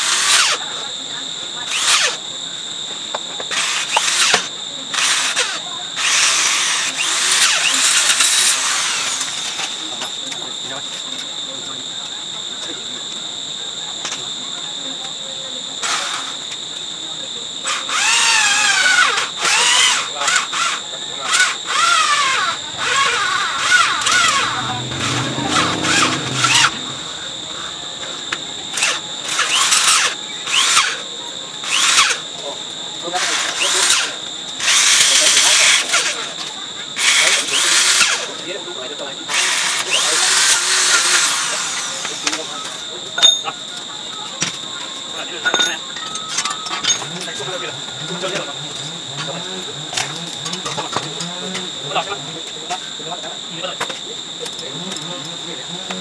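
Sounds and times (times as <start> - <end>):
drill bit squealing: 0.0 - 0.6, 1.7 - 2.2, 3.5 - 9.8, 17.6 - 32.2
electric drill drilling metal: 0.0 - 0.8, 1.6 - 2.2, 3.2 - 10.1, 15.8 - 16.5, 17.6 - 32.4, 33.0 - 38.5, 39.3 - 42.8
power tool whining: 0.0 - 12.7, 15.7 - 43.1, 43.7 - 56.0.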